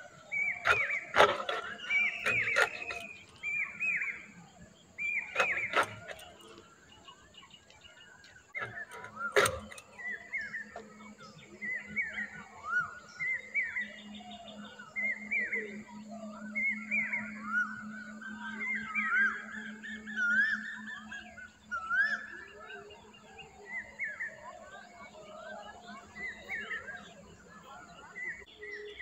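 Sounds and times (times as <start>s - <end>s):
birds chirping: 0.0s - 29.0s
blade chopping fish: 0.6s - 3.3s, 5.3s - 6.6s, 8.6s - 10.0s.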